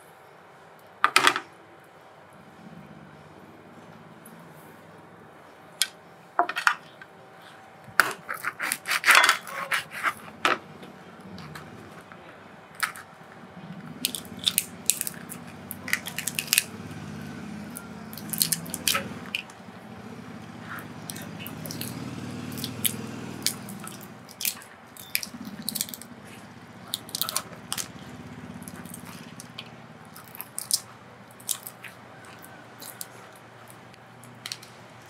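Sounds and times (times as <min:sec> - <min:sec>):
prawn shell cracking: 0:14.0 - 0:16.7, 0:28.7 - 0:33.8.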